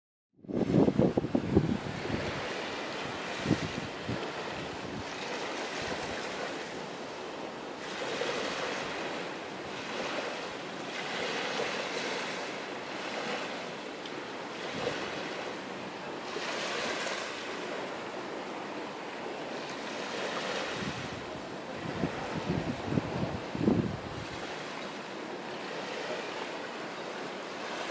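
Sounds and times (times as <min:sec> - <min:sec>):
wind gusting on microphone: 0:00.4 - 0:06.4, 0:20.1 - 0:24.7
small waves washing up a beach: 0:00.4 - 0:27.9.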